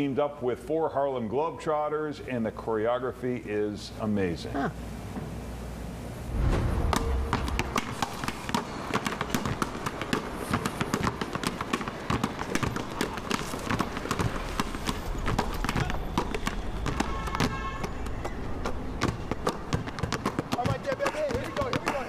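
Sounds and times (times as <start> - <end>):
basketballs bouncing on asphalt: 6.9 - 22.0.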